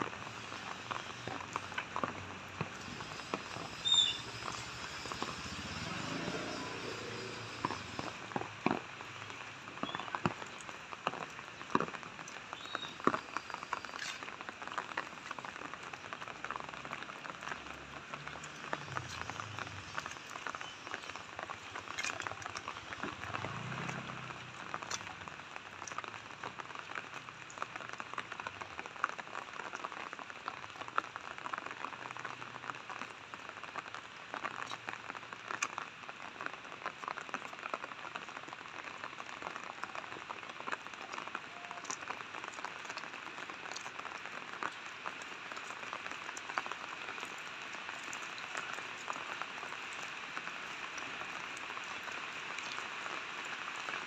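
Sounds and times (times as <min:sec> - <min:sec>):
rain on wet pavement: 0:00.0 - 0:54.0
drip ticks: 0:41.8 - 0:54.0.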